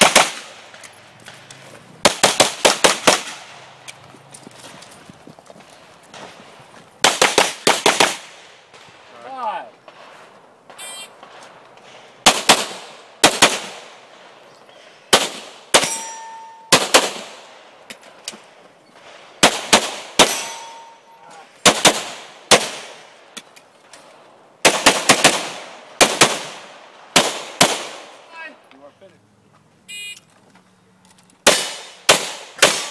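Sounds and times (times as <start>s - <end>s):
pistol gunshots: 0.0s - 0.8s, 2.0s - 3.6s, 7.0s - 8.9s, 10.7s - 14.3s, 15.1s - 17.5s, 19.4s - 21.0s, 21.6s - 23.0s, 24.6s - 28.1s, 31.4s - 32.9s
metallic ring: 15.8s - 16.7s, 20.4s - 21.3s.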